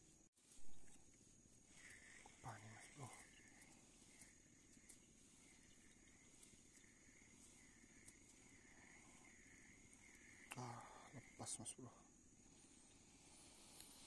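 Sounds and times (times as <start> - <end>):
insect chirping: 0.0 - 14.0
tiny ticks: 0.8 - 11.6.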